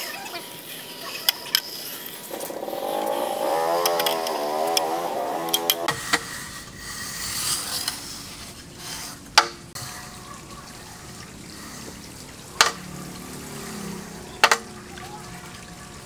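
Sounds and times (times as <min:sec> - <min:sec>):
straightedge scraping wet concrete: 0:00.3 - 0:10.2.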